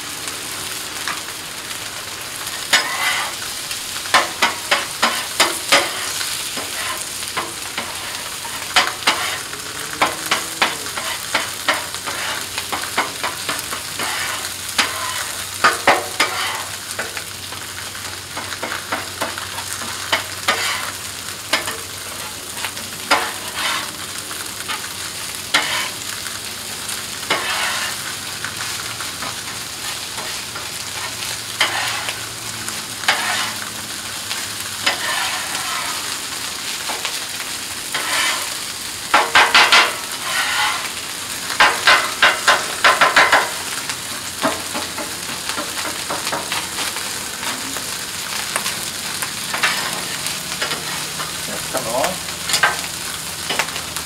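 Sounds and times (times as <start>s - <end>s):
rice sizzling on a griddle: 0.0s - 54.0s
metal spatula scraping and tapping: 2.7s - 3.3s, 4.1s - 9.4s, 10.0s - 17.2s, 18.4s - 20.9s, 25.5s - 26.0s, 27.3s - 28.0s, 31.0s - 32.2s, 33.1s - 33.6s, 34.8s - 36.0s, 37.9s - 38.5s, 39.1s - 40.9s
spatula chopping clacks: 41.6s - 43.6s.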